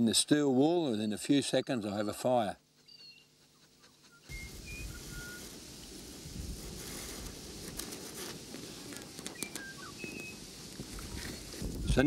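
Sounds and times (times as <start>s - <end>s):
birds chirping: 1.9s - 5.5s, 9.2s - 10.5s
steel wool hissing and crackling: 4.3s - 12.0s.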